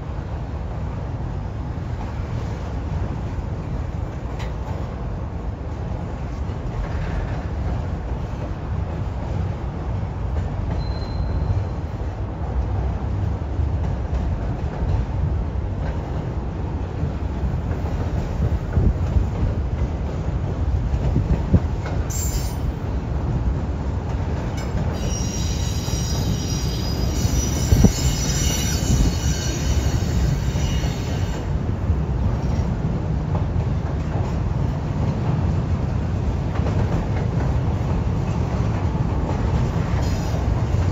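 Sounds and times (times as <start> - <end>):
train rumbling over bridge: 0.0 - 40.9
high-pitched wheel squeal: 10.8 - 11.7, 25.0 - 31.5.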